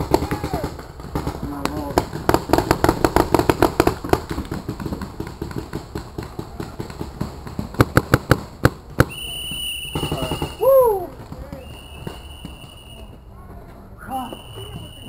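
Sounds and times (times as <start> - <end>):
paintball markers firing: 0.0 - 9.3.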